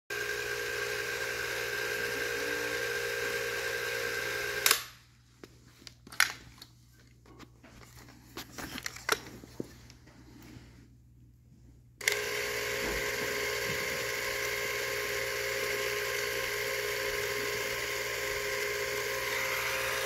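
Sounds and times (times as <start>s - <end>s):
cine camera clockwork whir: 0.1s - 4.9s, 12.0s - 20.0s.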